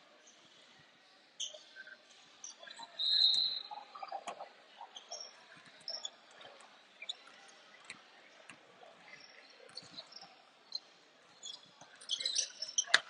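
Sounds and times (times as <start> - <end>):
sneaker squeaks: 2.5 - 4.4, 5.0 - 7.4, 9.1 - 10.8, 11.4 - 13.0.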